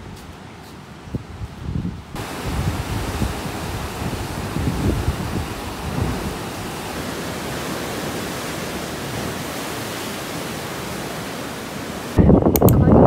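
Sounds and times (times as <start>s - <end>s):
wind buffeting microphone: 1.0s - 13.0s
surf rushing through rocks: 2.2s - 12.3s.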